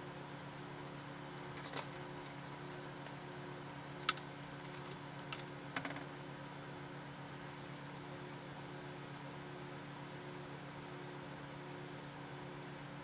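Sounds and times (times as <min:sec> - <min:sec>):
low hum and hiss: 0:00.0 - 0:13.0.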